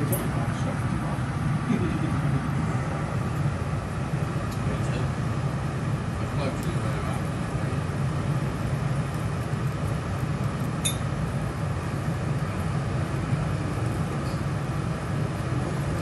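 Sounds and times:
utensil metallic clink: 10.8s - 11.0s.

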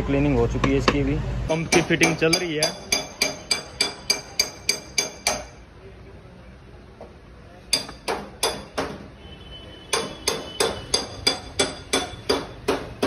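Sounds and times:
small hammer tapping on metal: 1.7s - 5.6s, 7.7s - 9.0s, 9.9s - 13.0s.

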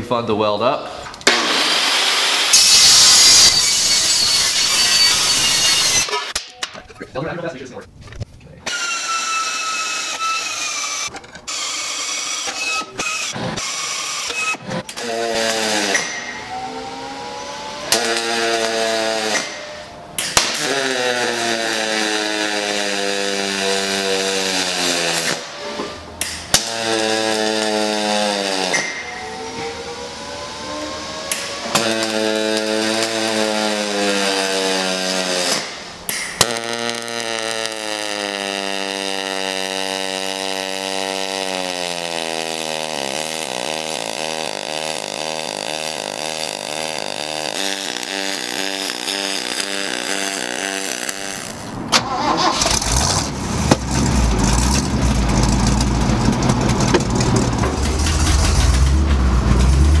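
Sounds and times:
welding arc buzzing hum: 1.2s - 6.4s, 8.7s - 51.9s
truck engine starting and rumbling: 49.6s - 60.0s.

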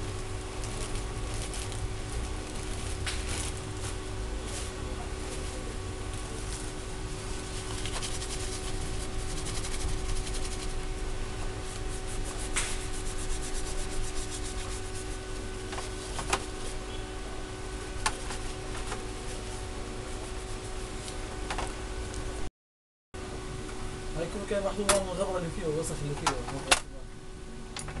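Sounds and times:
tissue rubbing on metal: 0.0s - 16.9s, 17.6s - 21.4s
steady hum: 0.0s - 22.5s, 23.2s - 28.0s.

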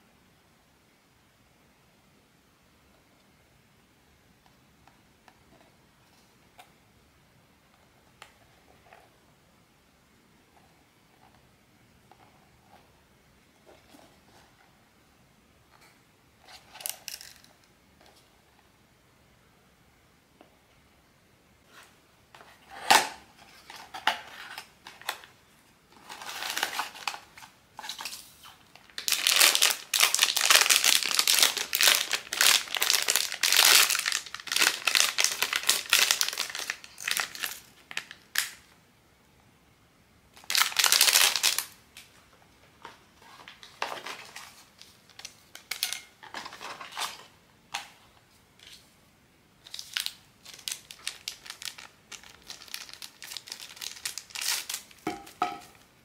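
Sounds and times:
plastic packaging crinkling: 16.5s - 17.5s, 25.9s - 38.7s, 40.3s - 42.1s, 43.2s - 47.3s, 49.6s - 55.7s.

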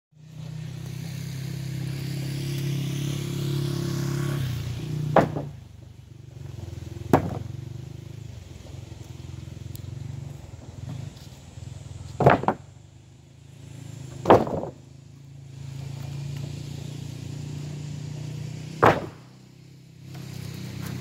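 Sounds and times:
tractor engine running: 0.2s - 21.0s
sharp knocks: 5.0s - 5.6s, 7.1s - 7.5s, 12.2s - 12.7s, 14.2s - 14.8s, 18.8s - 19.2s.

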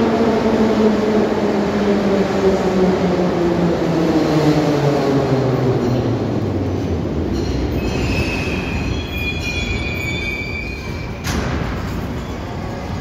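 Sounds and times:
metro train rumble: 0.0s - 13.0s
high-pitched brake squeal: 7.4s - 11.4s, 12.0s - 12.8s.

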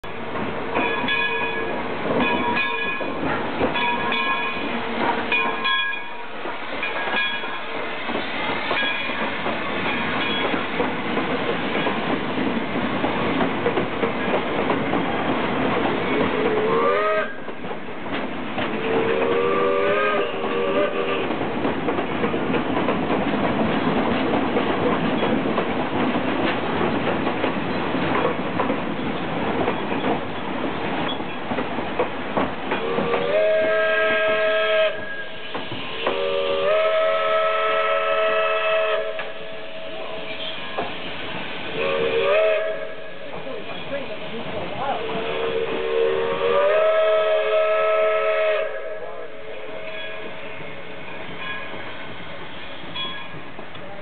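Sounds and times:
train rolling clatter: 0.0s - 54.0s
steam locomotive whistle blasts: 16.3s - 17.5s, 18.8s - 21.3s, 32.8s - 40.8s, 41.7s - 43.2s, 45.0s - 50.4s.

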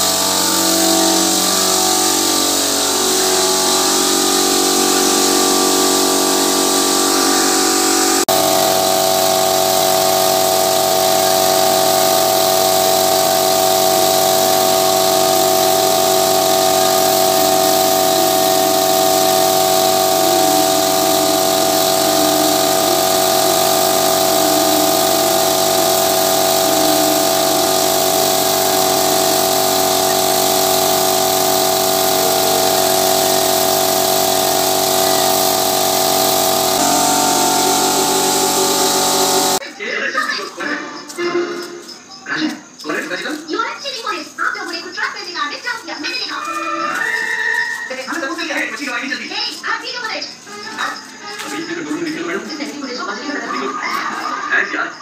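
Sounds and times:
air compressor droning: 0.0s - 39.6s, 47.9s - 54.7s
spray gun air hissing: 0.0s - 39.6s.

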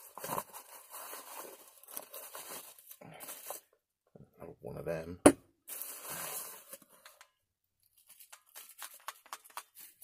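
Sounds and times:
plastic wrapping crinkling and tearing: 0.0s - 3.7s, 5.7s - 7.2s, 7.8s - 10.0s
small crackles and clicks: 7.0s - 10.0s.

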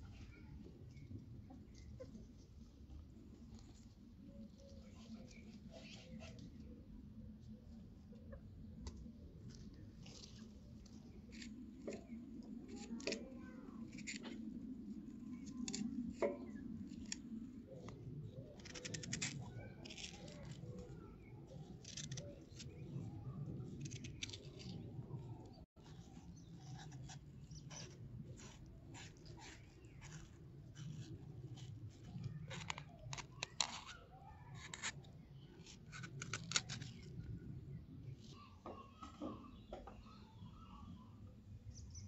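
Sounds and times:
utensils clicking and scraping food: 15.2s - 37.2s.

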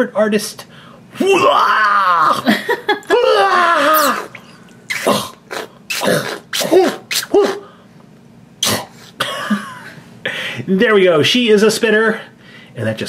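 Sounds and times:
person making retching noises: 3.8s - 7.7s, 8.6s - 8.9s.

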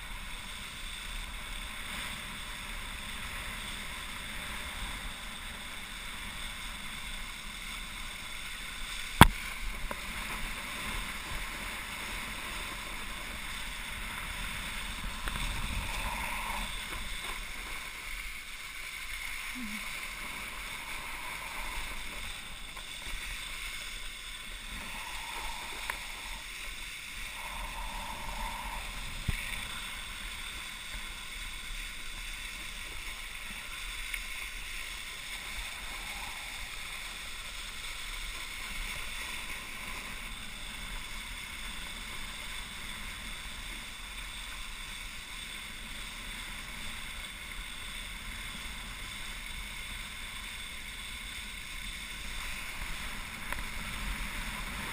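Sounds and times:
wakeboard rushing across water: 0.0s - 54.9s.

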